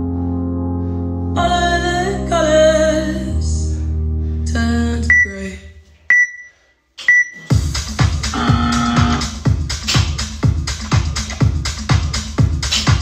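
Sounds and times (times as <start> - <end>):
background music with singing: 0.0 - 5.8, 7.4 - 13.0
short high countdown beeps: 5.1 - 5.4, 6.1 - 7.5
loud electronic music: 7.3 - 13.0.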